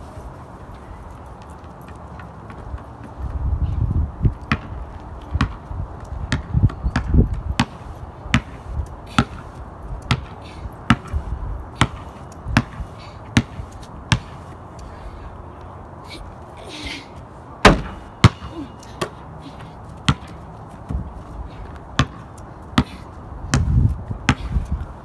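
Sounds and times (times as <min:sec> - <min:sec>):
basketball bouncing on concrete: 0:04.3 - 0:11.2, 0:11.8 - 0:14.4, 0:17.6 - 0:24.7.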